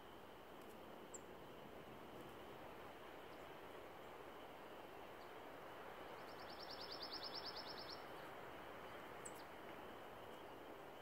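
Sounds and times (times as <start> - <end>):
faint steady outdoor hiss: 0.0 - 11.0
songbird trill: 1.1 - 1.3, 6.2 - 9.6.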